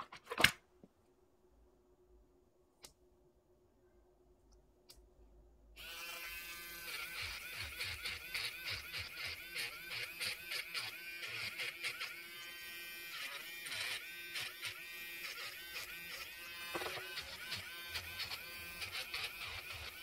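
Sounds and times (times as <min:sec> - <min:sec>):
nail drill whining: 0:05.8 - 0:20.0.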